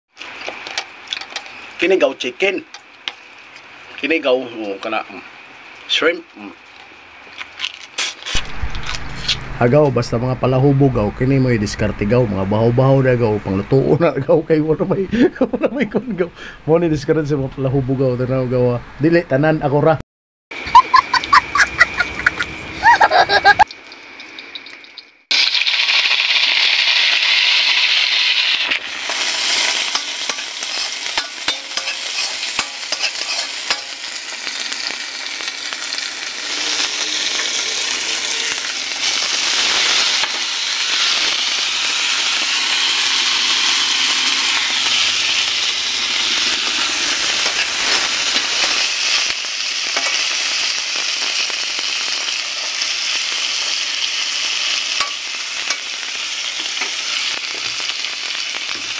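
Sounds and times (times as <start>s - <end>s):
food sizzling in hot oil: 0.1s - 9.7s, 20.6s - 58.9s
spatula scraping wok: 26.9s - 41.4s, 42.8s - 50.7s.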